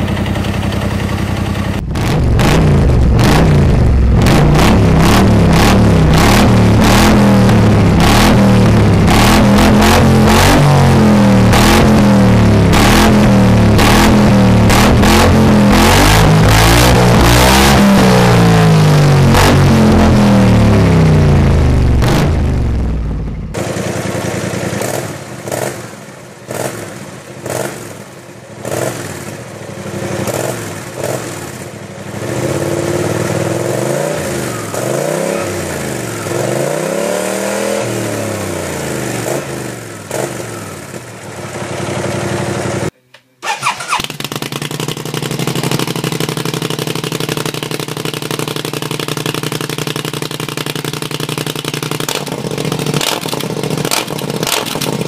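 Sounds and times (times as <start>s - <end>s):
engine running steadily: 0.0s - 27.9s
scooter engine revving: 0.0s - 55.0s.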